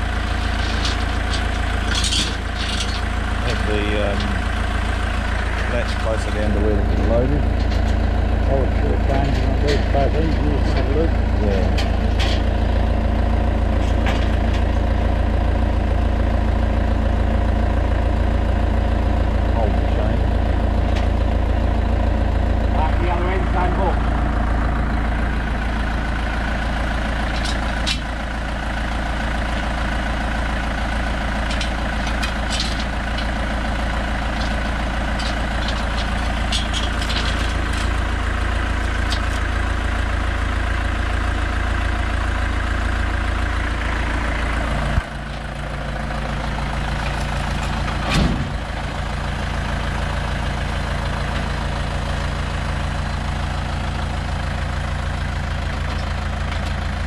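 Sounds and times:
tractor diesel engine running: 0.0 - 57.0
metal clank: 0.4 - 4.4, 5.6 - 8.1, 9.1 - 12.5, 31.4 - 38.1, 47.0 - 48.6.

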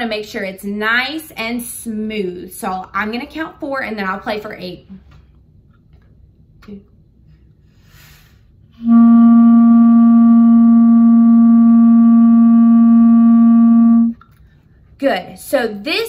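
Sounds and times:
clarinet long tone: 8.8 - 14.2.

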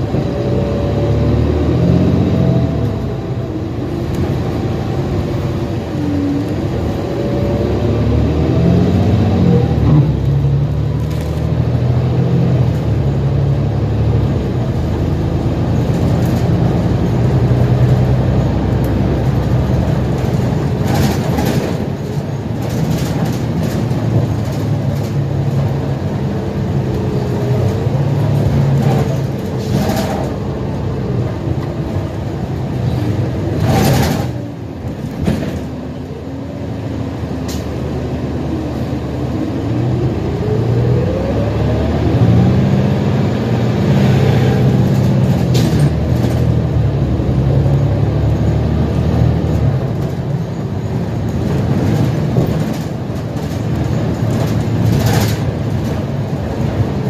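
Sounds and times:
bus engine drone: 0.0 - 57.0
rising engine tone: 38.3 - 44.8.

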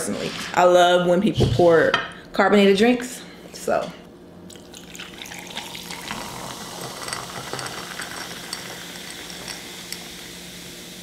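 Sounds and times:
drink pouring into glass: 4.5 - 10.6
fizz crackling: 4.7 - 11.0.

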